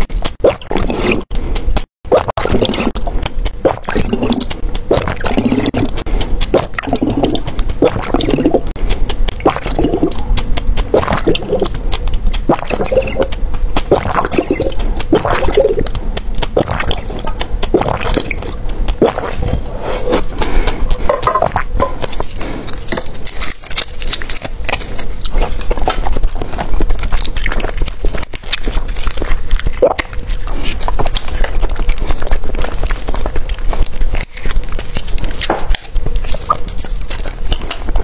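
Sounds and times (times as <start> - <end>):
gulping and swallowing: 0.0 - 38.0
wet mouth clicks: 0.0 - 38.0
liquid sloshing: 2.1 - 38.0
plastic container crinkling: 20.0 - 38.0.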